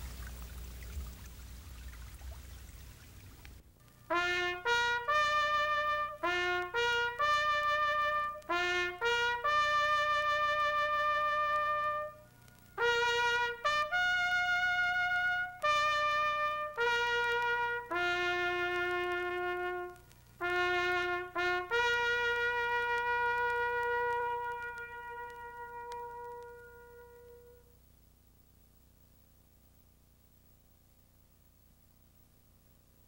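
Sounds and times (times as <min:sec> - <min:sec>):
solo trumpet melody: 0:03.8 - 0:27.8.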